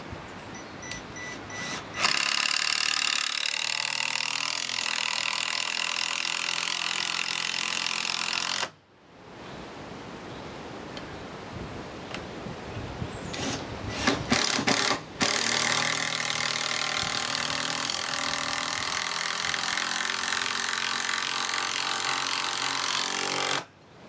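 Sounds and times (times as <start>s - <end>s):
cordless drill driving into wood: 0.9s - 8.8s, 13.3s - 23.7s.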